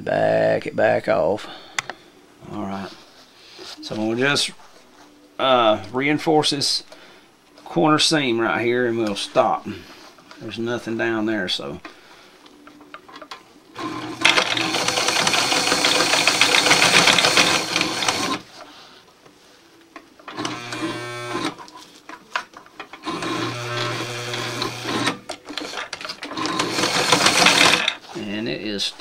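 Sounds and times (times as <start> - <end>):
electric sewing machine stitching: 13.8 - 18.4, 20.3 - 21.6, 23.0 - 28.0.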